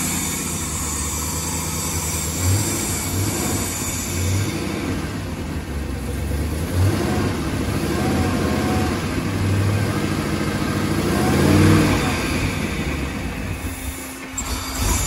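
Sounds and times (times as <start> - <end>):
boat engine running choppily: 0.0 - 15.0.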